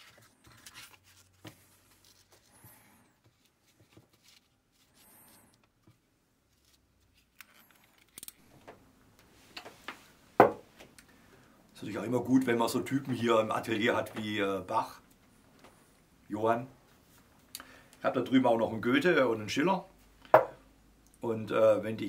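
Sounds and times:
paper rustling and scraping: 0.0s - 5.5s, 6.5s - 8.3s.

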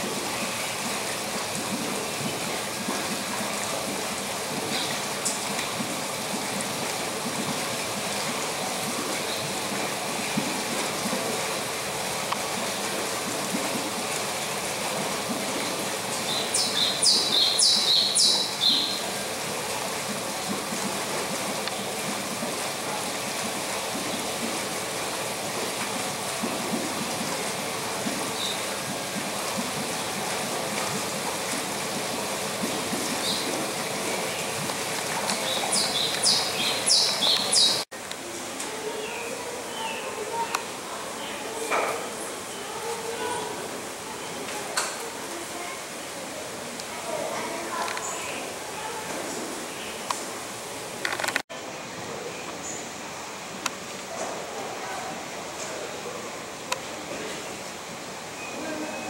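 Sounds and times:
running water: 0.0s - 59.0s
bird chirping: 16.3s - 19.0s, 35.4s - 37.8s.

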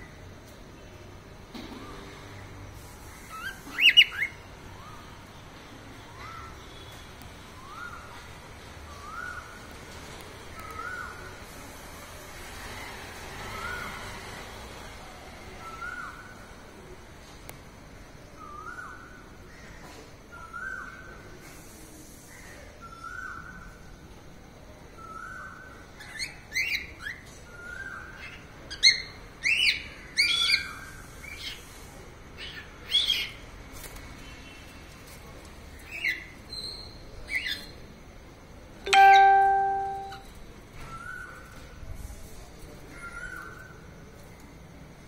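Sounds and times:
high chirps: 38.9s - 40.3s.

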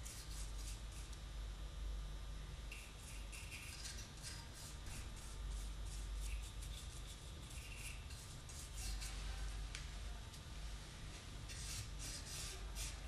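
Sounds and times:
low steady hum: 0.0s - 13.0s
paintbrush scratching on wood: 2.7s - 9.6s, 11.5s - 13.0s.

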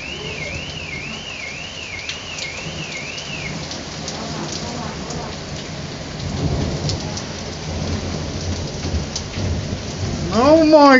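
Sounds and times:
high warbling alarm: 0.0s - 4.6s
hail ticks: 0.0s - 10.9s
heavy rain on pavement: 0.0s - 10.9s.

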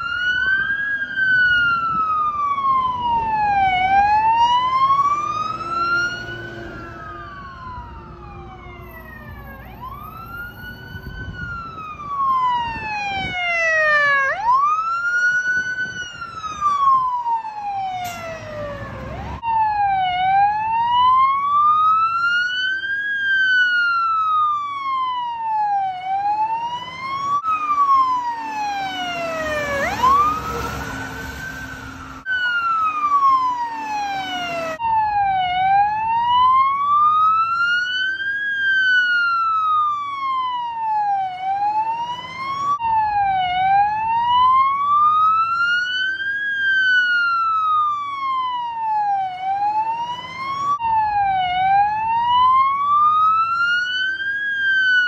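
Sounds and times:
fire engine siren wailing: 0.0s - 55.0s
siren tone sweeping upward: 0.0s - 55.0s
vehicle engine rumble: 14.3s - 20.0s, 25.9s - 35.8s.

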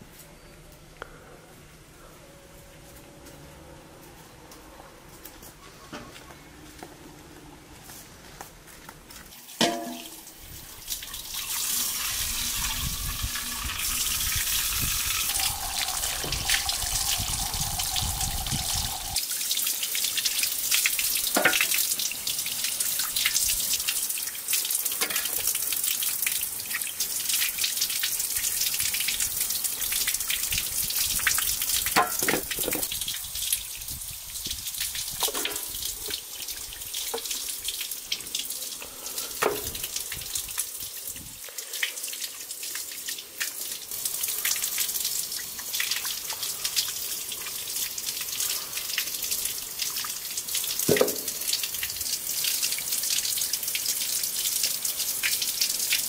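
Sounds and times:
tap water splashing into basin: 9.6s - 10.3s, 15.3s - 18.8s, 21.3s - 21.8s, 31.9s - 33.0s, 34.9s - 36.2s, 37.0s - 37.5s, 38.1s - 40.2s, 50.8s - 51.6s.

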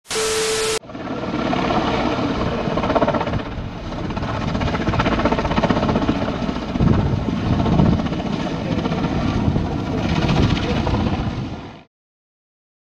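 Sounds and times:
helicopter rotor and turbine: 0.1s - 11.9s.

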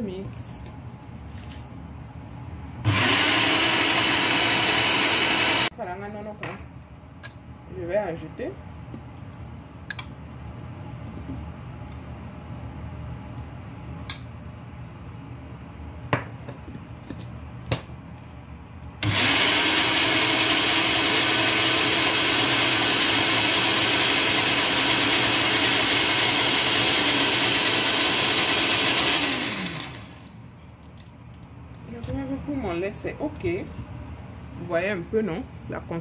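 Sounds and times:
blender running: 2.8s - 5.7s, 19.0s - 30.3s.

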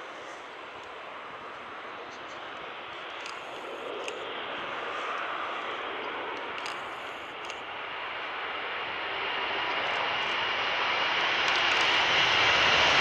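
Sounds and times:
distant jet engines: 0.0s - 13.0s.

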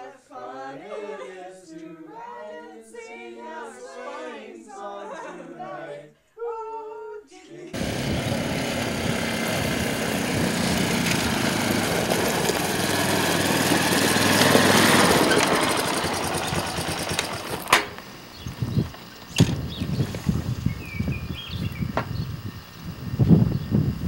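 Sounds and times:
atv engine running: 7.8s - 24.0s.

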